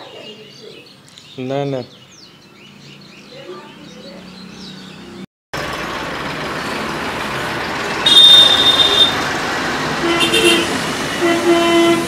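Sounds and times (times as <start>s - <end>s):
road traffic noise: 0.0s - 12.0s
vehicle horn honk: 8.0s - 9.3s, 10.0s - 12.0s.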